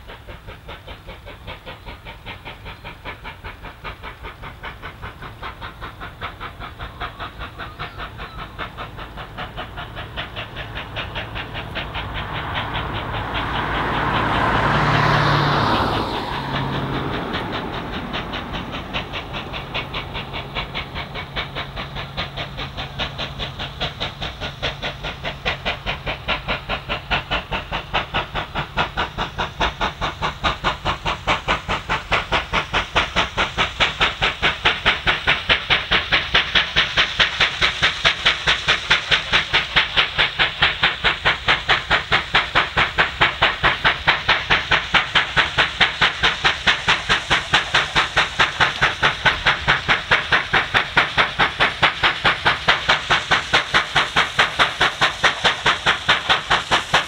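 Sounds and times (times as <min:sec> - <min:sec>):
loud steam hissing burst: 0:00.0 - 0:57.0
steam locomotive exhaust beats: 0:00.0 - 0:57.0.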